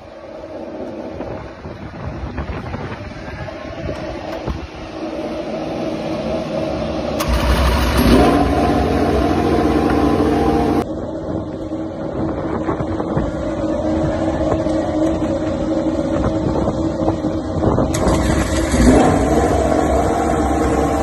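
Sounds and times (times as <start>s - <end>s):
motorcycle engine revving: 7.2s - 10.8s, 17.9s - 21.0s.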